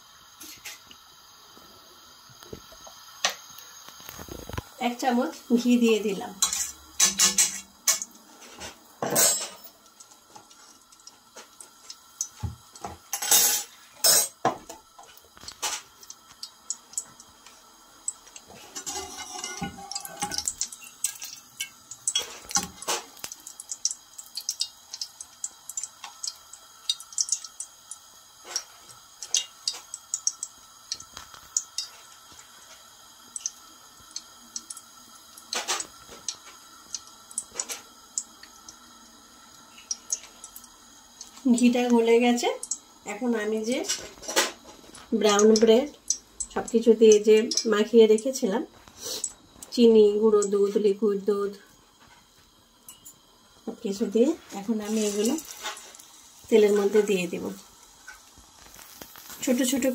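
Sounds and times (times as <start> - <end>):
ghee crackling in hot oil: 0.0 - 59.9
short hiss: 48.8 - 49.4.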